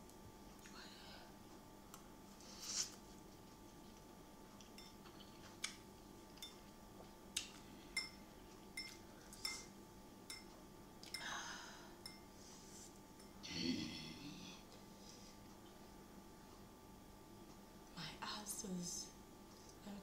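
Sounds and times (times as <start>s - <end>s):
fork clinking on ceramic bowl: 4.8s - 5.0s, 6.4s - 6.6s, 8.0s - 8.2s, 8.8s - 9.7s, 10.3s - 10.6s.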